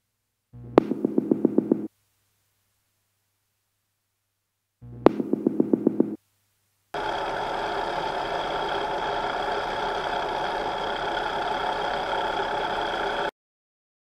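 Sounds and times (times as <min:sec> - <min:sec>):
motorcycle engine running: 0:00.6 - 0:01.9, 0:04.8 - 0:06.2, 0:07.0 - 0:13.3.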